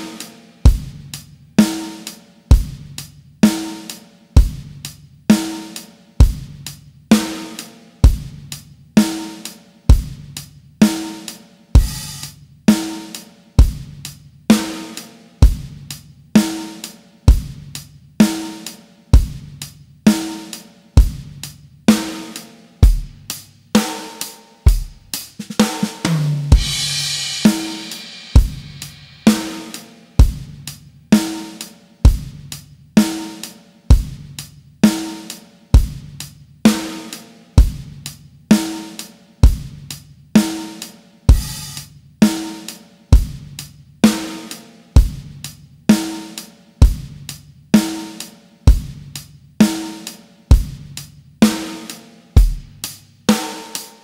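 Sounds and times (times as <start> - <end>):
drum kit playing pop beat: 0.0 - 54.0
crash cymbal ringing: 26.5 - 30.0.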